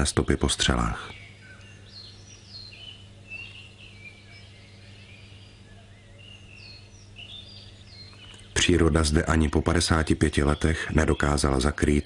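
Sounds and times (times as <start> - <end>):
songbirds chirping: 0.0 - 12.0.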